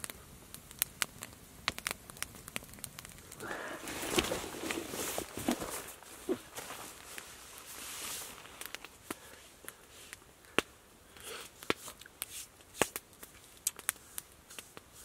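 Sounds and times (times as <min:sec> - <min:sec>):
campfire crackling: 0:00.0 - 0:15.0
fire popping: 0:00.0 - 0:15.0
soft rustle: 0:03.3 - 0:10.3.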